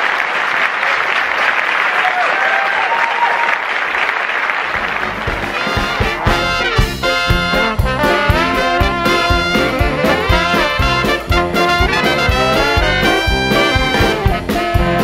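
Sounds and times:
applause: 0:00.0 - 0:06.8
band playing swinging brass music: 0:04.8 - 0:15.0
steady drum beat: 0:05.1 - 0:15.0.

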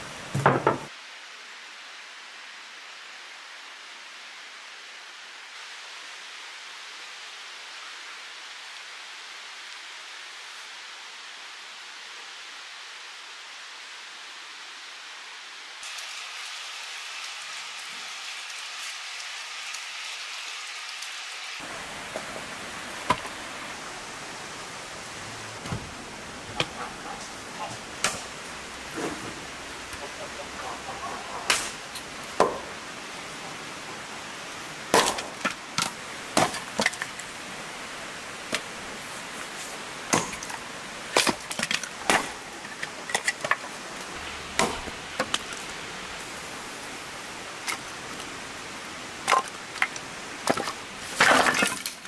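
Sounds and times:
axe chopping firewood: 0:31.5 - 0:32.7, 0:34.9 - 0:37.1, 0:40.1 - 0:43.6, 0:44.5 - 0:45.7.

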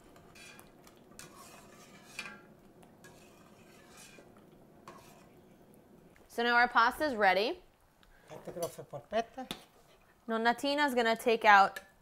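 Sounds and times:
metal spoon scraping a pot: 0:00.0 - 0:05.4.

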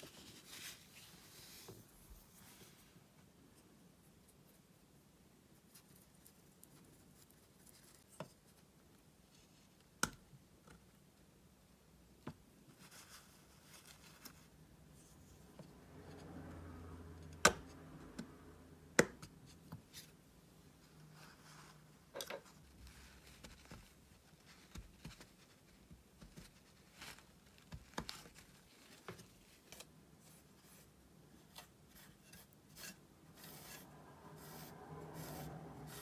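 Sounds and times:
brush scratching paint pans: 0:30.3 - 0:36.0.

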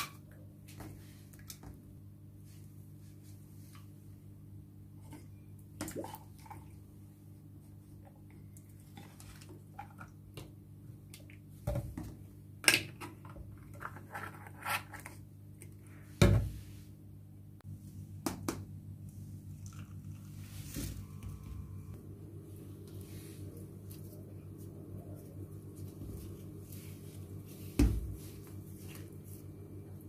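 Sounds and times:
low hum: 0:16.5 - 0:30.0.

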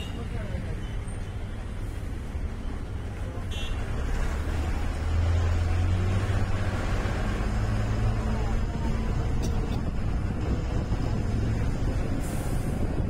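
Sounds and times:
bus engine running: 0:00.0 - 0:13.0
road noise: 0:00.0 - 0:13.0.

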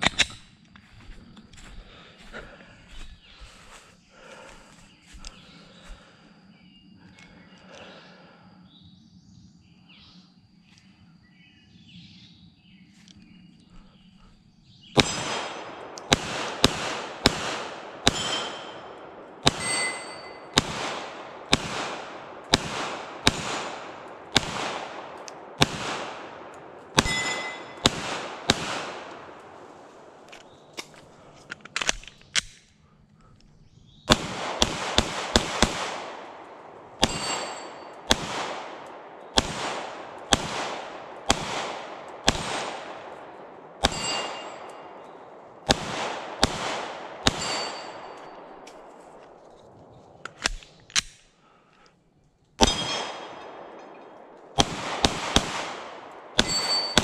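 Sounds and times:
pistol shots echoing: 0:14.9 - 0:31.4, 0:34.1 - 0:49.4, 0:52.6 - 0:57.0
metal target ringing: 0:18.0 - 0:20.7, 0:27.0 - 0:27.9, 0:37.0 - 0:38.1, 0:43.8 - 0:45.1, 0:47.3 - 0:48.6, 0:52.6 - 0:54.1, 0:56.4 - 0:57.0.

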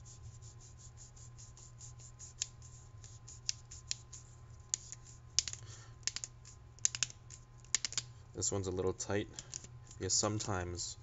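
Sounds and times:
low steady hum: 0:00.0 - 0:11.0
metal threads clicking: 0:04.7 - 0:08.1.

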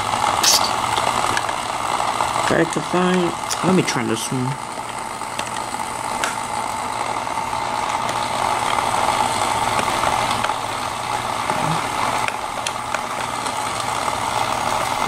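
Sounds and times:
toy motor whirring: 0:00.2 - 0:06.3.

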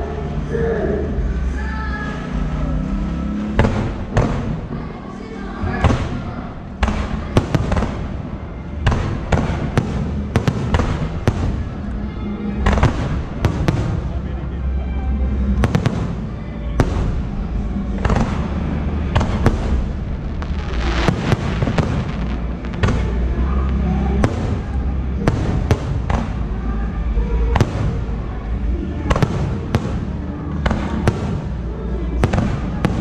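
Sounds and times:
firework bangs: 0:03.4 - 0:04.9, 0:05.6 - 0:11.8, 0:12.6 - 0:14.2, 0:15.6 - 0:26.5, 0:29.1 - 0:33.0
low rumble: 0:08.0 - 0:32.8.

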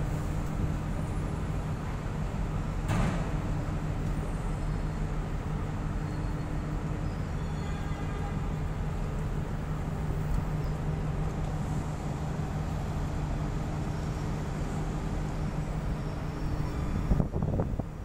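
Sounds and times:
ship machinery drone: 0:00.0 - 0:18.0
wind buffeting microphone: 0:16.8 - 0:18.0.

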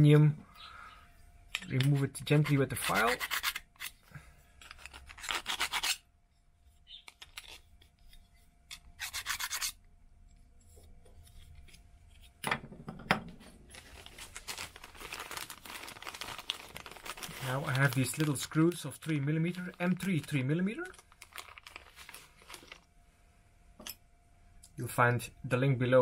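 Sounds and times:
hand file scraping metal: 0:02.4 - 0:03.9, 0:09.0 - 0:09.8.

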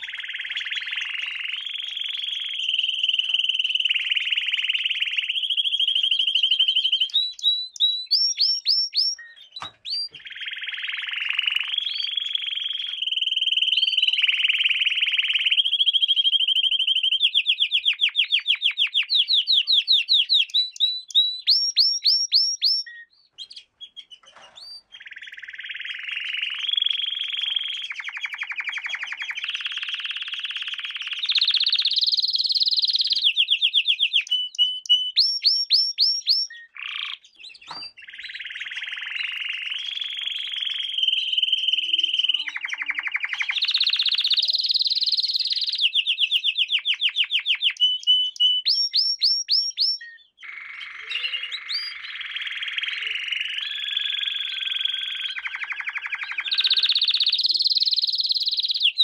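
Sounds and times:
canary singing trills: 0:00.0 - 0:59.0.

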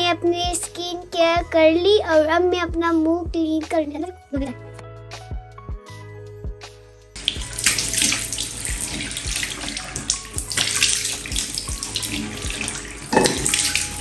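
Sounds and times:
quiet background music: 0:00.0 - 0:14.0
hands splashing water: 0:07.2 - 0:14.0
tap running into washbasin: 0:07.2 - 0:14.0.

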